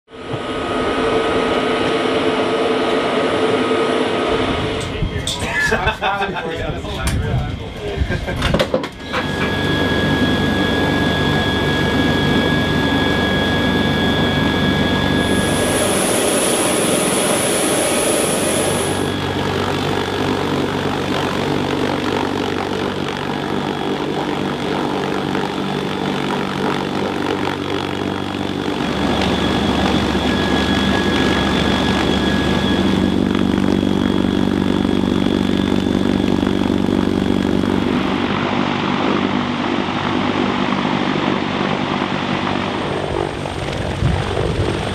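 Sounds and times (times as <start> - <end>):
helicopter engines whining: 0.1 - 44.9
helicopter rotors beating: 0.1 - 44.9.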